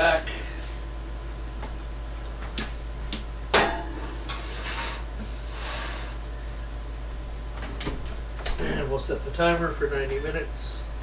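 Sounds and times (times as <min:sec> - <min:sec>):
steady low hum: 0:00.0 - 0:11.0
pan scraping: 0:03.9 - 0:05.1.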